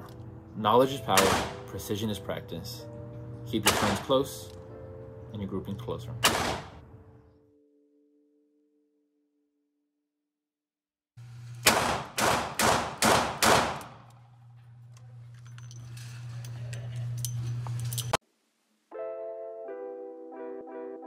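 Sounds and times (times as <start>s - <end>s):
music: 0.0s - 9.8s, 18.9s - 21.0s
revolver shots echoing indoors: 3.6s - 4.1s, 6.2s - 6.8s, 11.4s - 14.2s
low hum: 11.2s - 18.2s.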